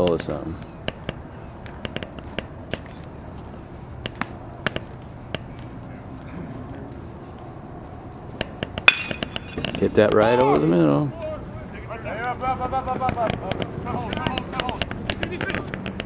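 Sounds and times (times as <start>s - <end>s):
sharp clicks and taps: 0.0s - 3.1s, 12.9s - 16.0s
outdoor field ambience: 0.0s - 16.0s.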